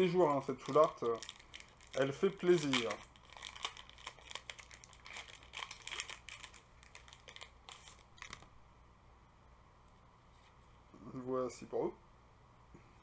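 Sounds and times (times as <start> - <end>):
foil wrapper crinkling: 0.0 - 8.5.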